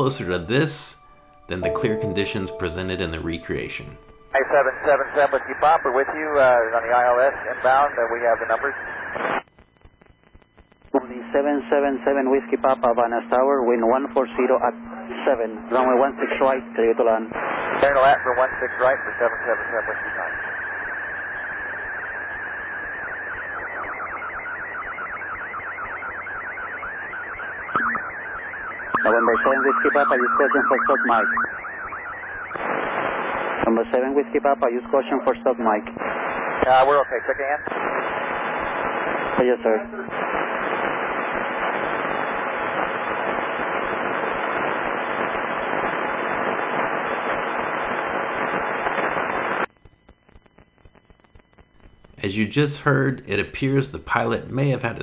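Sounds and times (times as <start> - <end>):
radio hiss: 3.3 - 55.0
warbling radio squeal: 20.4 - 32.6.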